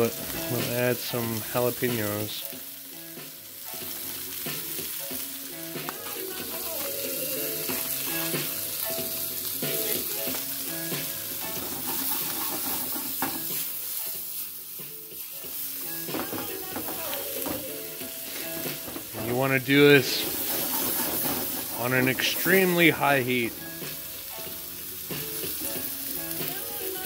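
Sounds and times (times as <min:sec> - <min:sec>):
vegetables sizzling in oil: 0:00.0 - 0:27.0
pan being shaken: 0:20.0 - 0:22.4.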